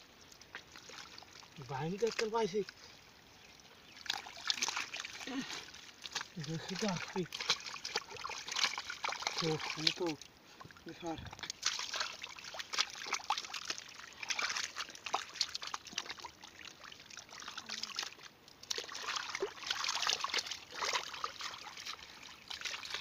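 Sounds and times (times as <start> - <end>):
hands squelching in wet mud: 3.8 - 23.0.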